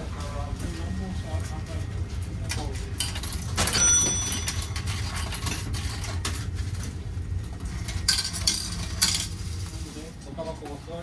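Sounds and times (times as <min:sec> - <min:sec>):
steady low hum: 0:00.0 - 0:11.0
coin ringing clink: 0:03.0 - 0:06.2, 0:07.8 - 0:09.4
coins clicking into vending machine: 0:03.0 - 0:06.4, 0:07.7 - 0:09.4.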